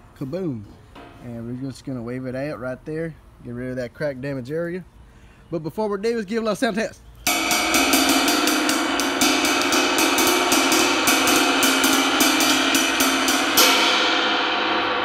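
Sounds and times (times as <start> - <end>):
ride cymbal struck with drumstick: 7.3 - 15.0.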